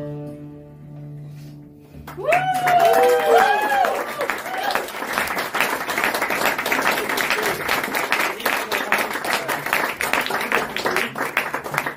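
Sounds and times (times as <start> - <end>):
audience applauding: 2.0 - 11.9.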